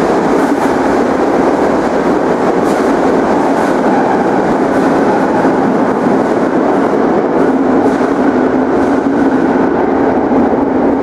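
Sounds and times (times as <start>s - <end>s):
subway train rumbling in tunnel: 0.0s - 11.0s.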